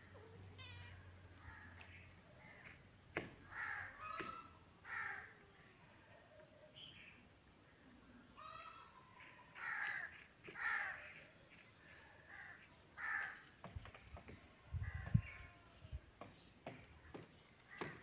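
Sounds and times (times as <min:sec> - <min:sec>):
crow cawing: 0:03.5 - 0:05.3, 0:09.6 - 0:11.2, 0:12.3 - 0:13.5, 0:17.7 - 0:18.0.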